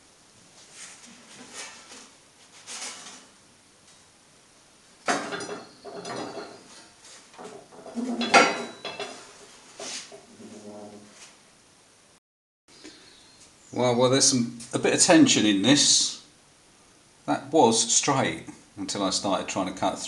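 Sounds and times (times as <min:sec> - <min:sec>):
steel plate clanking and scraping: 0:07.5 - 0:09.3.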